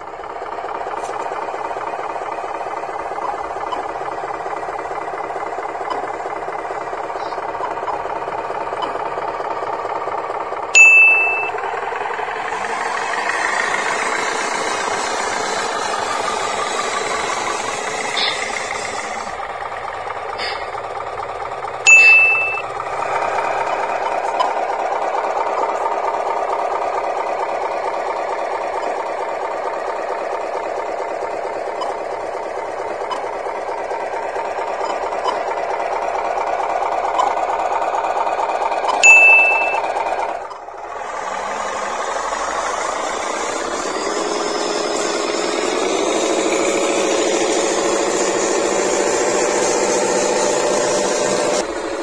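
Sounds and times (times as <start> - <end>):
model truck engine: 0.0 - 52.0
short bright ding: 10.8 - 11.5, 21.9 - 22.6, 39.0 - 39.8.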